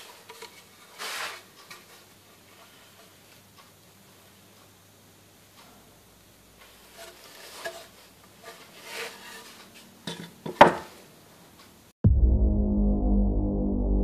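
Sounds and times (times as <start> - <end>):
wood scraping in joint: 6.9 - 10.2
loud low music: 12.0 - 14.0.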